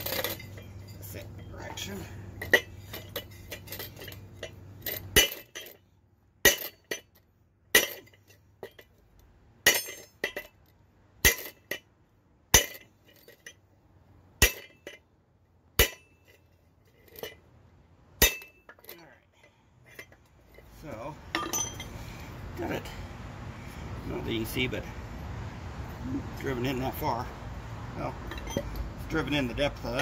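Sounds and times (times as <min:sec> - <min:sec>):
metal-on-metal clinks: 0:00.0 - 0:11.9, 0:14.4 - 0:15.0, 0:18.2 - 0:22.1, 0:28.2 - 0:29.0.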